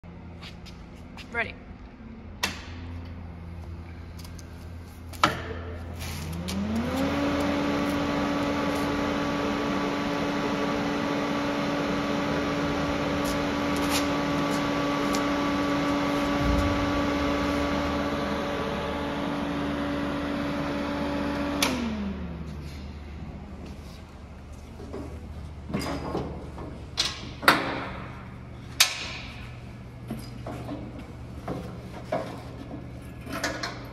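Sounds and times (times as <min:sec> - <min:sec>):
cooling fan humming: 0:00.1 - 0:33.9.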